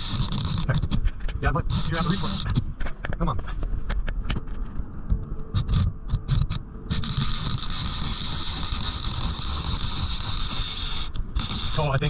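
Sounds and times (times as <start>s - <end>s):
steady hiss: 0.0s - 2.6s, 5.6s - 12.0s
arm scraping against camera: 0.0s - 3.7s, 5.4s - 12.0s.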